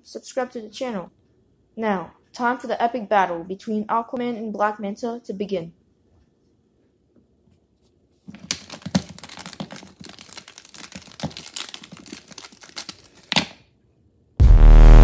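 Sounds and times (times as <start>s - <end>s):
plastic figures clacking together: 8.3s - 13.6s.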